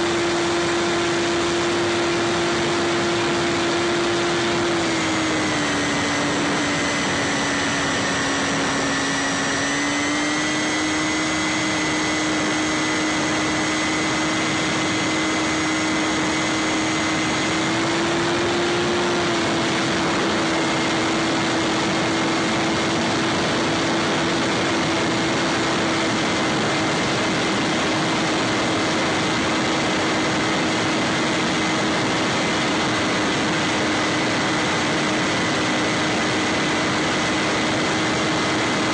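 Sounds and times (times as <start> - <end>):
electric motor whine: 0.0 - 38.9.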